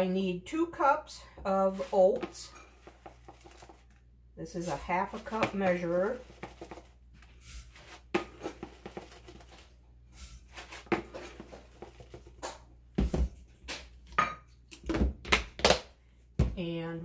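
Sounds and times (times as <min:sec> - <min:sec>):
oats rustling and pouring: 0:01.6 - 0:12.4.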